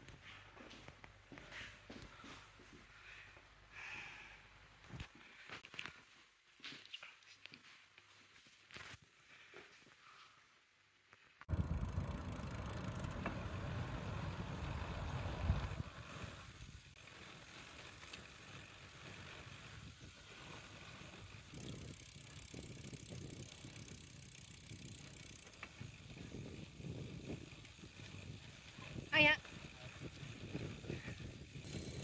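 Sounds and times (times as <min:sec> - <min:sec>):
bicycle tyre rumble on road: 0:11.2 - 0:32.0
bike rattle: 0:11.5 - 0:32.0
wind buffeting microphone: 0:13.4 - 0:16.7, 0:25.6 - 0:32.0.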